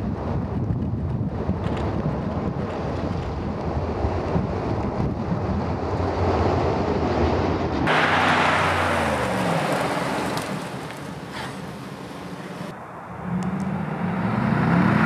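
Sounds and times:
wind buffeting microphone: 0.0 - 14.0
vehicle rumble: 0.0 - 15.0
tyre noise while braking hard: 7.9 - 12.7.

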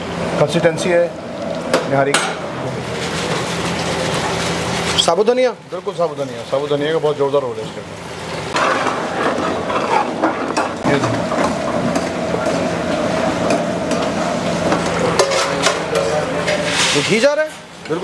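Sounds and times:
steady hum: 0.0 - 5.7, 7.7 - 17.9
gravy sizzling: 2.4 - 17.2
ladle scraping steel pot: 8.6 - 10.8, 15.0 - 17.3.

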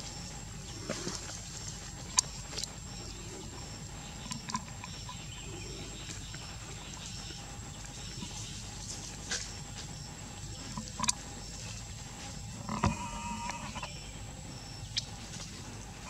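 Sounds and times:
steady forest hiss: 0.0 - 16.0
faint high chirp: 12.9 - 15.7.

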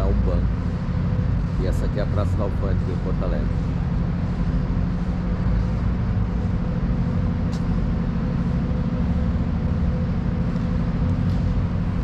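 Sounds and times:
faint steady hum: 0.0 - 12.0
low engine rumble: 0.0 - 12.0.

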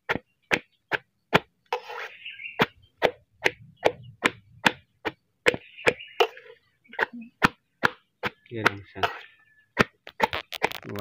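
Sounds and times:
metal blade chopping food: 7.4 - 10.8.

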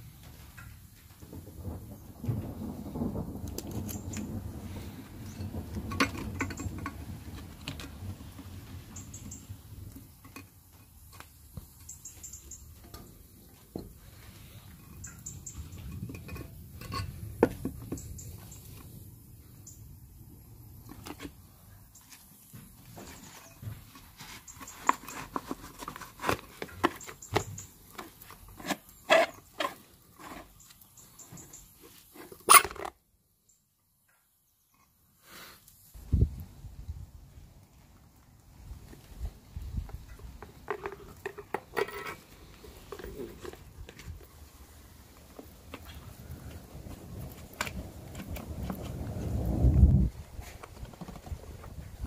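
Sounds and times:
rustling scraping handling noise: 3.5 - 19.0, 20.7 - 33.0, 38.7 - 52.0.

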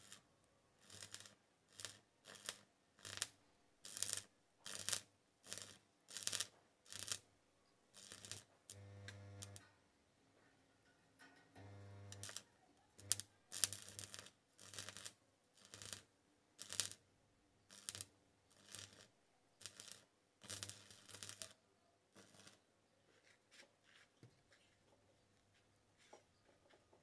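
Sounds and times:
arc welding bursts: 8.0 - 9.6, 11.6 - 12.4, 13.0 - 15.1
welding transformer humming: 8.0 - 9.6, 11.6 - 12.4, 13.0 - 15.0.

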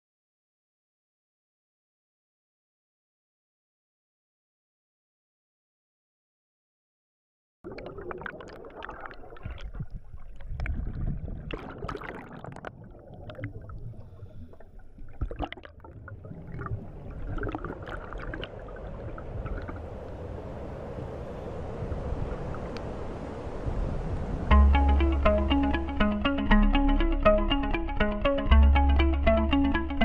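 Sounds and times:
regulator bubbles gurgling: 7.7 - 24.0
steady low underwater rumble: 7.7 - 29.4.

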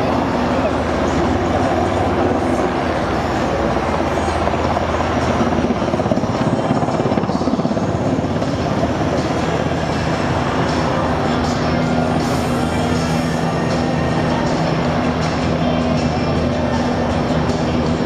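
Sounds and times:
helicopter rotor chopping: 0.0 - 18.0
rushing downwash: 0.0 - 18.0.

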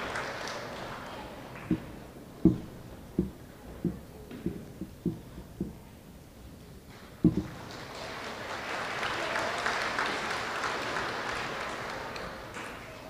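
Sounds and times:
audience crowd noise: 0.0 - 13.0
footsteps on hollow wooden stage: 0.8 - 7.8
loud thump: 1.7 - 5.8, 7.2 - 7.6.

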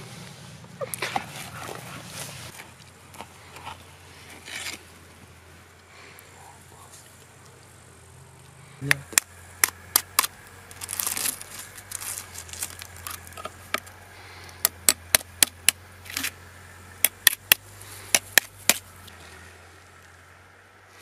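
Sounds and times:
aluminium foil crinkling: 10.1 - 13.7.

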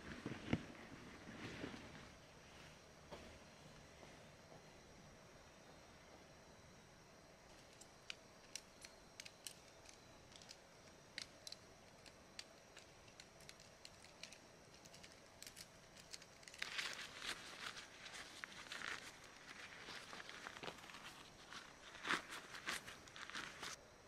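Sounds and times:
rustling: 0.0 - 4.2, 7.5 - 23.8
small clicks of camping gear: 7.5 - 23.8.

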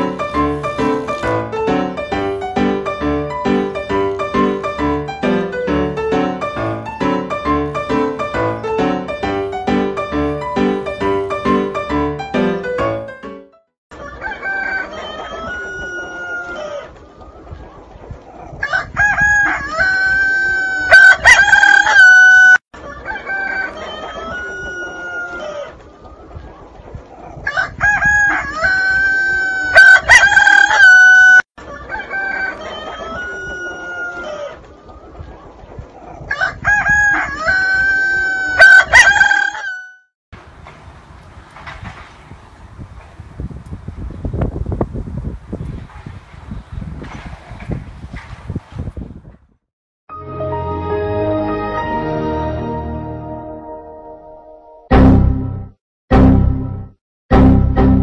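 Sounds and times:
rooster crowing: 13.9 - 16.9, 18.6 - 25.8, 27.4 - 34.6, 36.3 - 40.0
rooster clucking: 13.9 - 17.7, 18.3 - 39.8.

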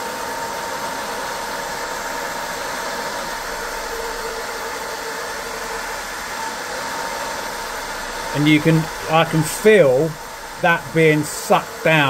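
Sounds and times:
cooling fan whining: 0.0 - 12.0.

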